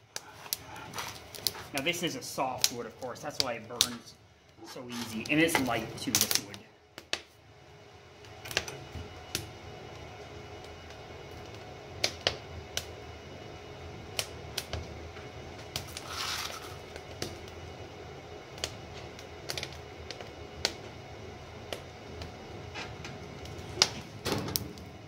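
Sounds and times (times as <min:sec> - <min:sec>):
fire hiss: 0:00.0 - 0:07.2, 0:15.6 - 0:17.9
wood fire crackling: 0:00.0 - 0:25.0.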